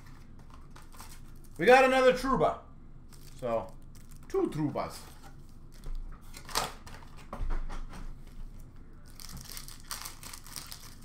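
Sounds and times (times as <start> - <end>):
wrappers tearing and crinkling: 3.1 - 4.4, 9.0 - 11.0.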